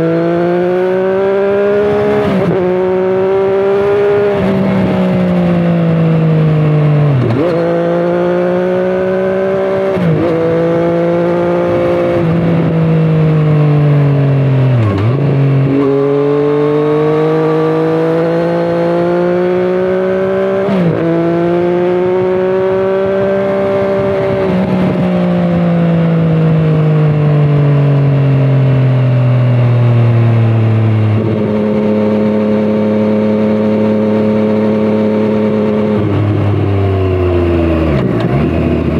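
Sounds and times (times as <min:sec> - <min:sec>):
motorcycle engine revving: 0:00.0 - 0:38.9.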